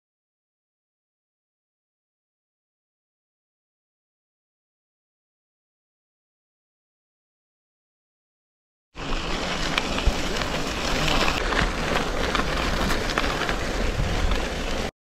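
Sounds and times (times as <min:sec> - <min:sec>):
tyres crunching on gravel: 0:09.0 - 0:14.9
wind noise on microphone: 0:09.0 - 0:14.9.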